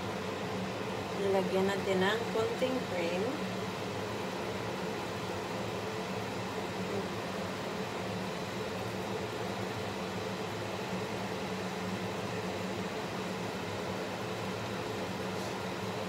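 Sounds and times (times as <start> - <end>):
extractor fan humming: 0.0 - 16.0.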